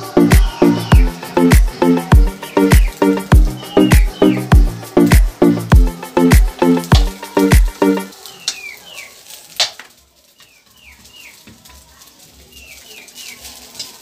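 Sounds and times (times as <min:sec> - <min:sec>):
background music with strong beat: 0:00.0 - 0:08.1
faint sizzling: 0:00.0 - 0:14.0.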